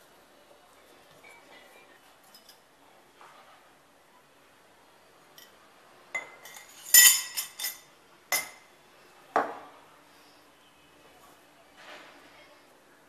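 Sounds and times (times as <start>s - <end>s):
metal parts clinking: 6.5s - 7.8s.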